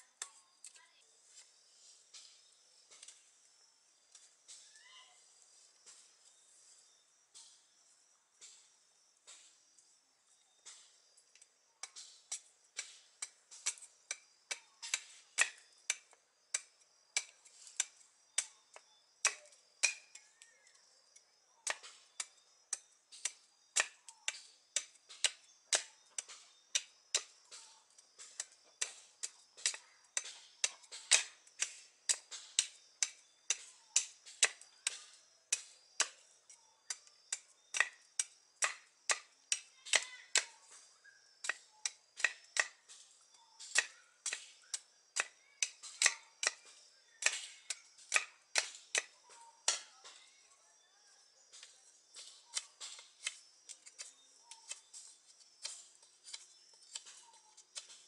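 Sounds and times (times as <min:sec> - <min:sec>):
knife carving wood clicks: 0:11.8 - 0:20.3, 0:21.6 - 0:36.2, 0:36.9 - 0:40.5, 0:41.4 - 0:42.8, 0:43.6 - 0:49.9, 0:52.5 - 0:54.8.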